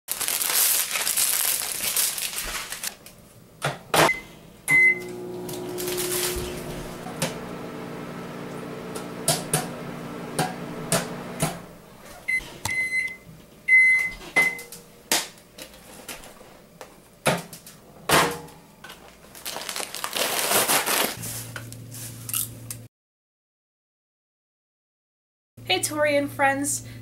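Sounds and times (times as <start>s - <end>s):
paper bag rustling: 0.1s - 3.1s, 5.6s - 7.0s, 19.0s - 22.2s
microwave oven humming: 3.5s - 15.1s
microwave beeps: 4.0s - 11.4s, 12.3s - 14.7s
popcorn popping: 8.7s - 11.7s.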